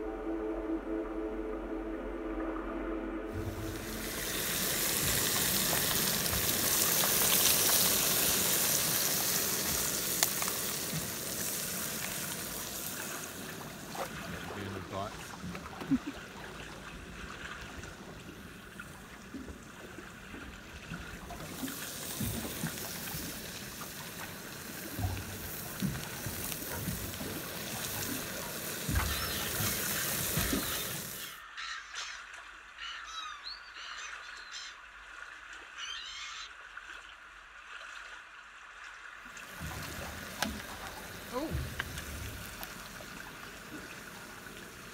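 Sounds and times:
crayfish sizzling in a frying pan: 0:03.7 - 0:13.5, 0:21.6 - 0:31.3.

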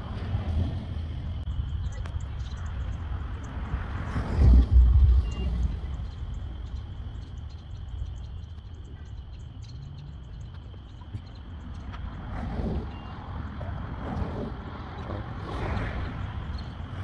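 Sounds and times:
thunder rumbling: 0:00.0 - 0:08.4
night insects or frogs chorus: 0:00.0 - 0:17.0.

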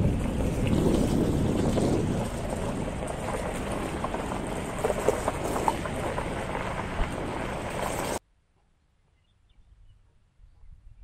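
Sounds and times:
wind buffeting microphone: 0:00.0 - 0:08.2.

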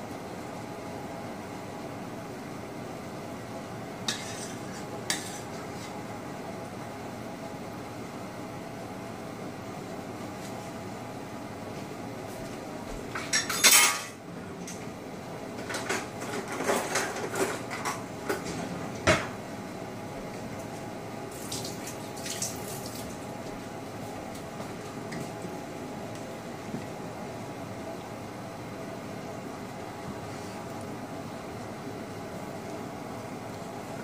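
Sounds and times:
steady background hum: 0:00.0 - 0:34.0.

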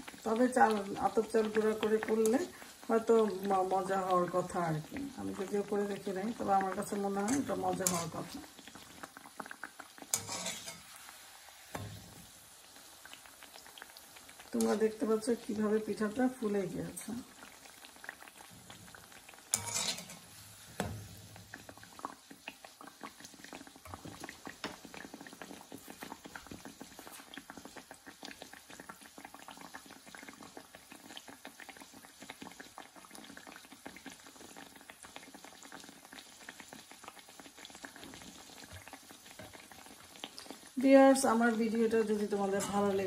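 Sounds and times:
oil bubbling and crackling: 0:00.0 - 0:43.0
metal skimmer scraping pan: 0:07.2 - 0:08.3, 0:10.1 - 0:11.0, 0:19.5 - 0:21.2, 0:42.4 - 0:43.0.

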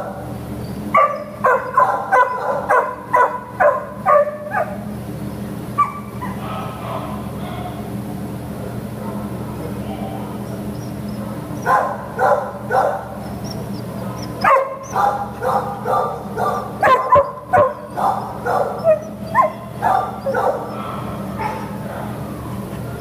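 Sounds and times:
steady low hum: 0:00.0 - 0:23.0
dog barking and yipping: 0:00.8 - 0:04.9, 0:05.8 - 0:07.8, 0:10.8 - 0:22.4.

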